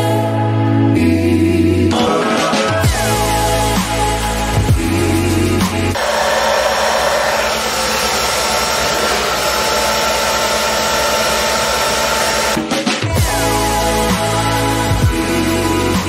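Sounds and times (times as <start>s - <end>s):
hair dryer blowing: 6.0s - 12.7s.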